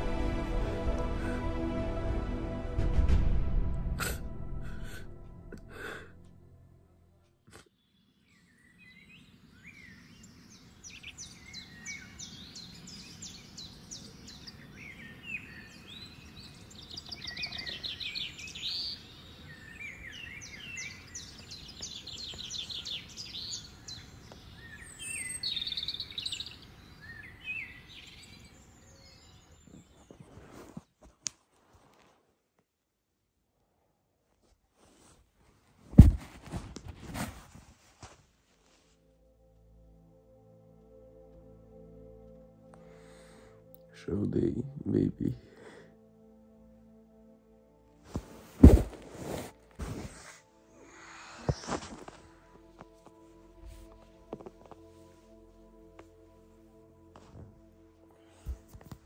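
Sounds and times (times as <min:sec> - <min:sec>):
songbirds singing: 0:07.7 - 0:30.4.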